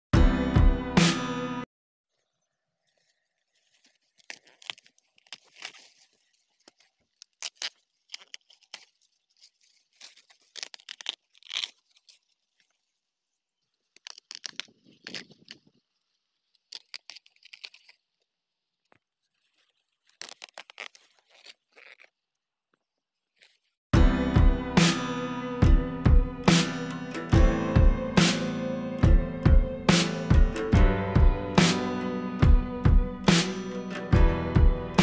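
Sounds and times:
corn husks crackling and rustling: 0:02.8 - 0:23.8.

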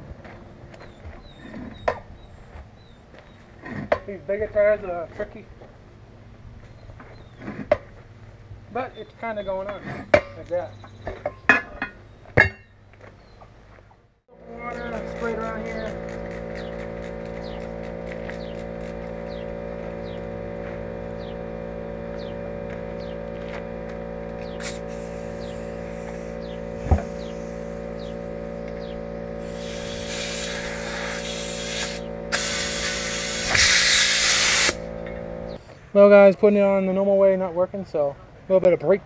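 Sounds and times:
steady machine hum: 0:14.2 - 0:36.1
compressed air hissing into tire: 0:24.4 - 0:35.6.

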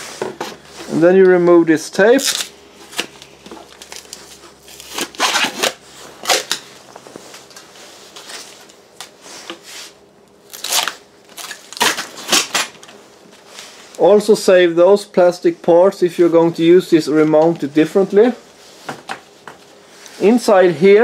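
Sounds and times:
adhesive tape ripping: 0:02.1 - 0:03.2, 0:03.8 - 0:06.7, 0:10.5 - 0:12.8.

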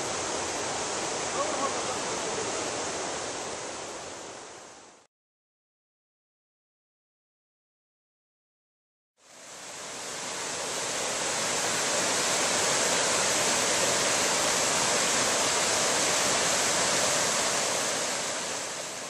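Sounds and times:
river water running over rocks: 0:00.0 - 0:05.0, 0:09.2 - 0:19.0.

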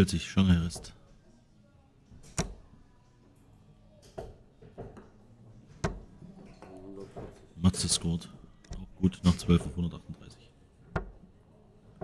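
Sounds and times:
darts thudding into dartboard: 0:02.2 - 0:02.8, 0:05.7 - 0:06.3, 0:10.8 - 0:11.2.

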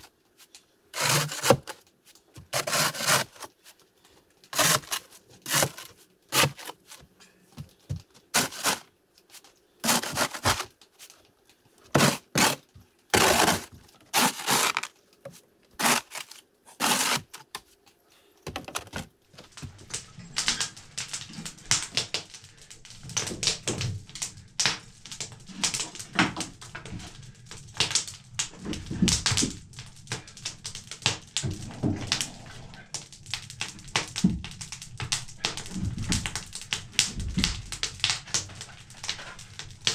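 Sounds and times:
wood fire crackling: 0:00.0 - 0:39.9
snow shovel scraping wooden deck: 0:00.9 - 0:01.7, 0:02.5 - 0:03.5, 0:04.5 - 0:06.9, 0:08.3 - 0:08.8, 0:09.8 - 0:10.7, 0:11.9 - 0:14.9, 0:15.8 - 0:17.4.

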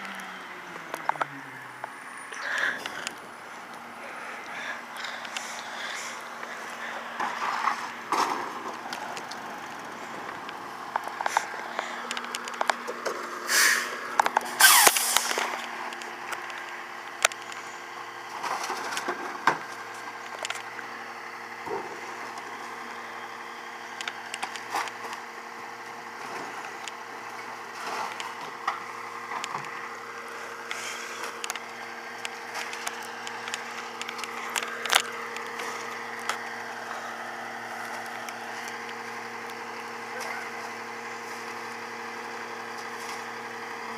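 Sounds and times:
garbage truck idling: 0:00.0 - 0:43.9
loud hissing bursts: 0:13.5 - 0:15.5.

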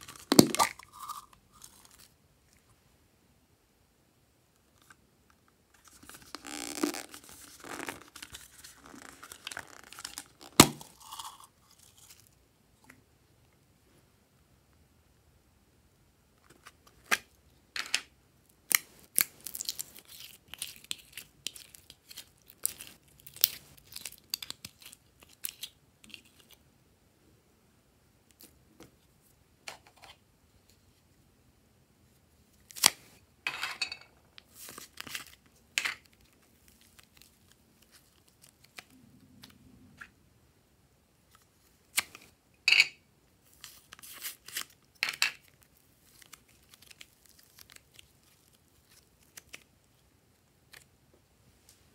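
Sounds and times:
clay tearing: 0:32.6 - 0:33.1, 0:43.6 - 0:49.7.

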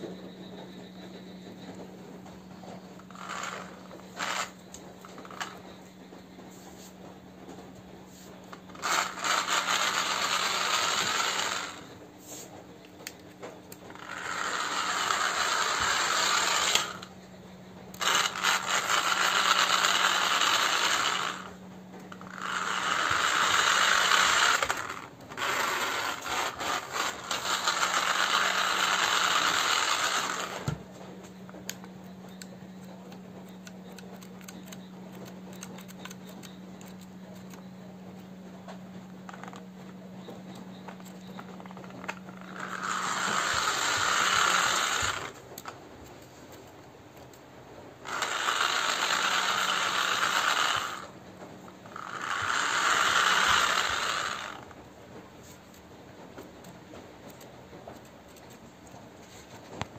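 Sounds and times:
toy car motor whirring: 0:02.6 - 0:05.8, 0:08.2 - 0:13.2, 0:13.8 - 0:17.2, 0:17.9 - 0:38.3, 0:39.1 - 0:46.2, 0:48.0 - 0:54.8.

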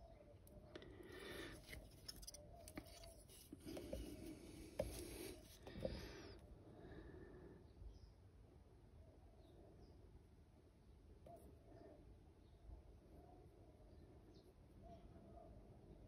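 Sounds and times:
plastic model handling: 0:01.5 - 0:05.9.

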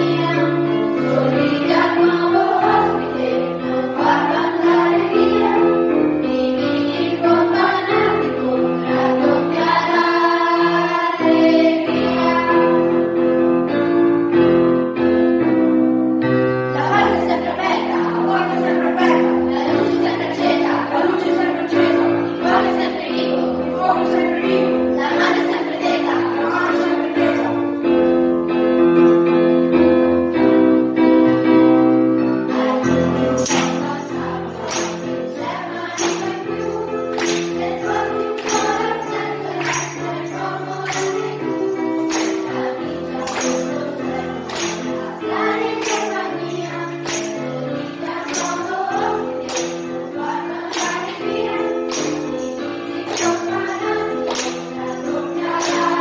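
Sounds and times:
children singing: 0:00.0 - 0:12.9, 0:16.7 - 0:27.8, 0:32.5 - 0:56.0
tambourines: 0:32.6 - 0:56.0
hand claps: 0:34.6 - 0:38.9, 0:39.5 - 0:40.2, 0:40.8 - 0:41.4, 0:42.1 - 0:42.5, 0:43.2 - 0:43.9, 0:44.5 - 0:45.1, 0:47.0 - 0:47.4, 0:53.0 - 0:53.6, 0:54.2 - 0:56.0.

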